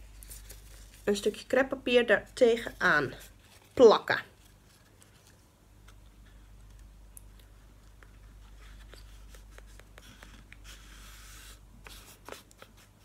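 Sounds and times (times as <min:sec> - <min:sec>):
crepe paper rustling on cardboard: 0:00.0 - 0:01.5, 0:02.4 - 0:06.0, 0:08.2 - 0:13.0.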